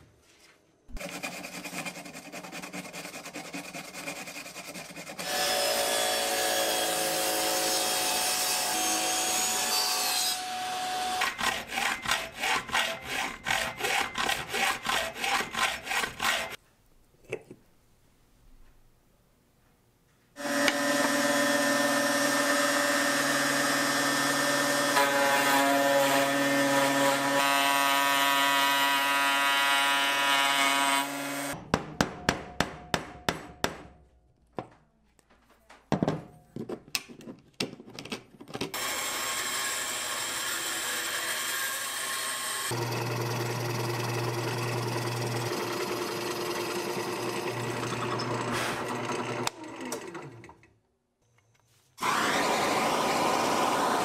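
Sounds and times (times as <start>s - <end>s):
router cutting wood: 5.2s - 16.6s, 20.4s - 31.6s, 38.8s - 50.0s, 52.0s - 54.0s
drill press motor running: 38.8s - 50.5s, 52.0s - 54.0s.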